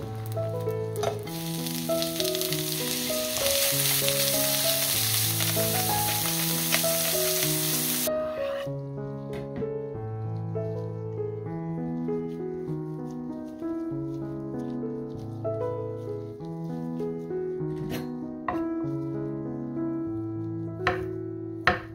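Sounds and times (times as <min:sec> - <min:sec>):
carrots sizzling in frying pan: 0:00.0 - 0:08.6
background music: 0:00.0 - 0:21.9.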